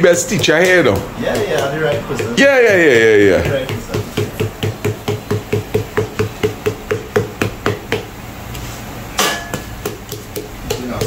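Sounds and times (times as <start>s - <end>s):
wooden paddle knocking on flatbread: 0.0s - 8.2s, 9.2s - 11.0s.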